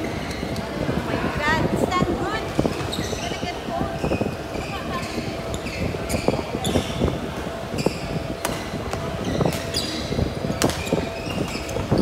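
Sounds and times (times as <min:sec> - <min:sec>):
shoes squeaking on floor: 0:02.6 - 0:12.0.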